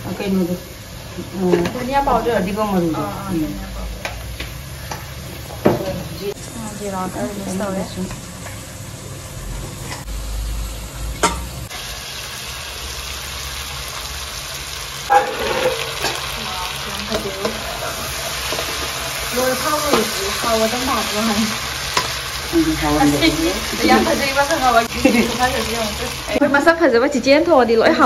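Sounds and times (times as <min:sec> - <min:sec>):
fish and potatoes sizzling: 0:00.0 - 0:26.8
liquid hitting hot pan: 0:15.1 - 0:16.4.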